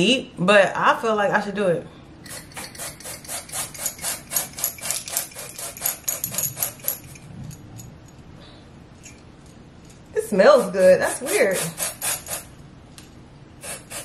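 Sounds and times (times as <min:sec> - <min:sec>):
spray bottle hissing sprays: 0:02.2 - 0:07.0, 0:10.6 - 0:12.5, 0:13.6 - 0:14.0.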